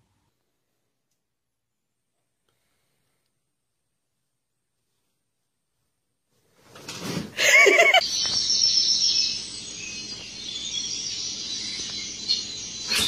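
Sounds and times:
small birds chirping: 0:07.6 - 0:13.0.

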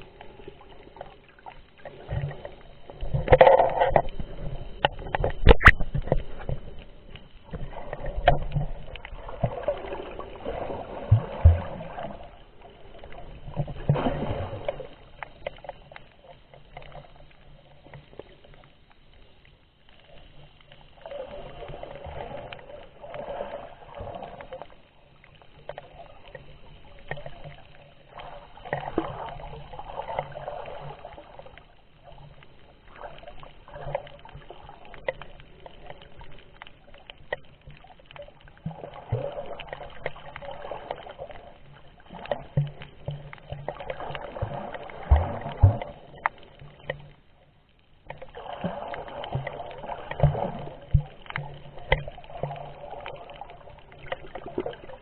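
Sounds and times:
muffled underwater water sloshing: 0:00.0 - 0:55.0
small clicks and knocks: 0:03.0 - 0:09.1, 0:33.8 - 0:38.8, 0:49.3 - 0:52.6.

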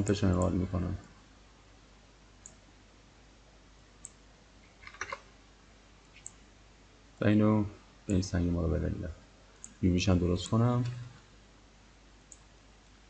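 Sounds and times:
low room hiss: 0:00.0 - 0:13.0
computer mouse clicks: 0:02.4 - 0:02.6, 0:04.0 - 0:05.3, 0:06.1 - 0:06.4, 0:09.6 - 0:09.8, 0:12.2 - 0:12.5.

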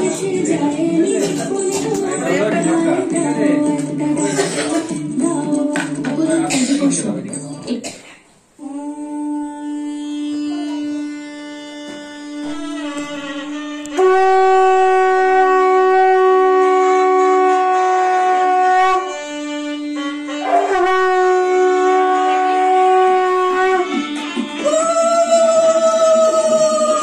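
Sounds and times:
conch shell blasts: 0:09.9 - 0:24.5.

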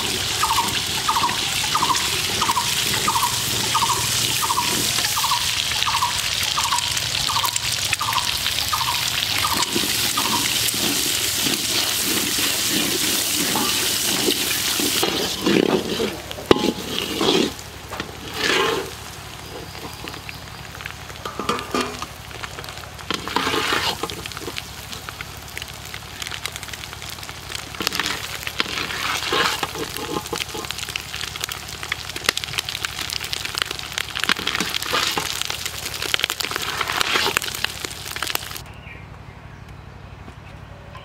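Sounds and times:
food frying and sizzling: 0:00.0 - 0:38.7
metal ladle scraping pan: 0:09.6 - 0:20.2, 0:21.2 - 0:22.1, 0:23.1 - 0:24.6, 0:27.8 - 0:30.7.

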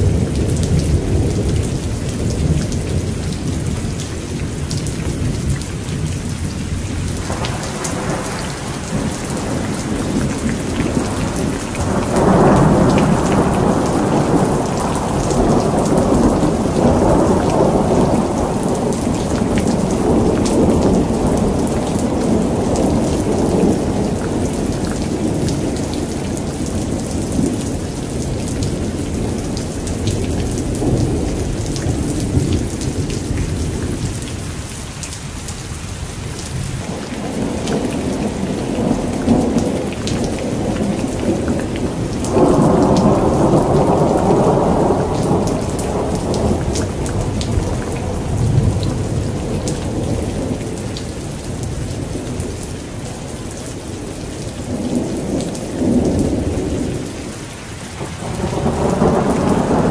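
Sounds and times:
thunder rumbling: 0:00.0 - 0:34.6, 0:36.5 - 0:53.2, 0:54.0 - 0:59.9
heavy rain falling: 0:00.0 - 0:59.9.

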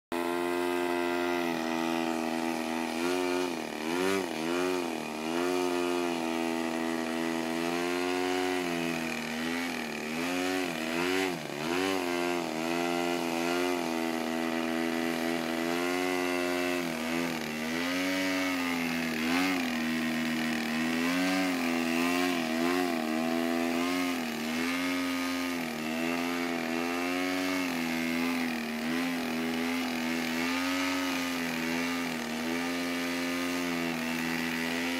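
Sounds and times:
model plane engine running: 0:00.1 - 0:34.9.

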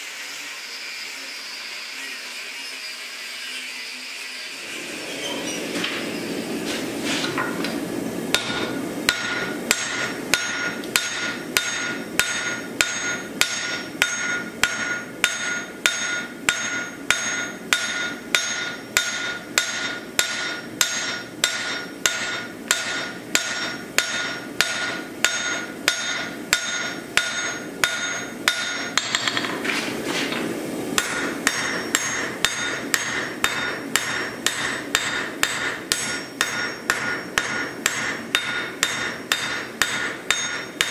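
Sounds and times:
hammer striking metal on anvil: 0:08.3 - 0:29.6, 0:31.0 - 0:40.9.

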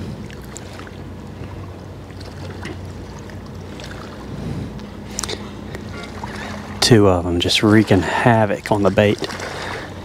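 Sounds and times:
boat motor humming: 0:00.0 - 0:10.0
small water splashes: 0:00.0 - 0:10.0
water lapping against shore: 0:00.0 - 0:10.0.

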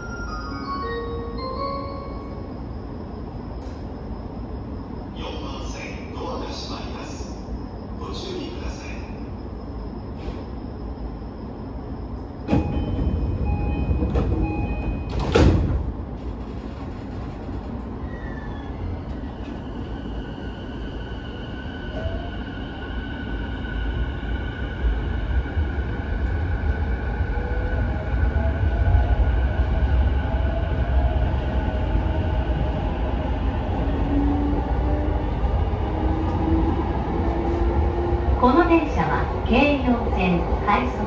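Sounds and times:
train door chime beeping: 0:00.0 - 0:03.8, 0:12.4 - 0:15.6
train doors shutting: 0:00.0 - 0:07.3, 0:08.0 - 0:24.2
train wheels rumbling on rails: 0:10.0 - 0:41.0.

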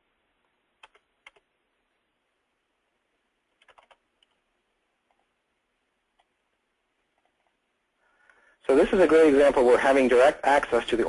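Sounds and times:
keyboard and mouse clicking: 0:00.8 - 0:01.5, 0:03.5 - 0:04.4, 0:07.1 - 0:07.6.

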